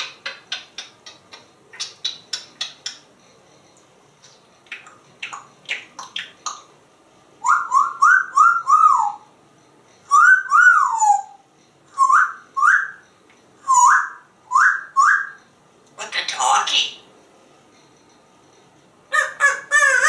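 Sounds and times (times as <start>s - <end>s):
parrot beak clicking: 0.0s - 3.1s, 4.2s - 6.7s
parrot whistling: 7.4s - 9.3s, 10.0s - 13.0s, 13.6s - 15.5s, 19.1s - 20.0s.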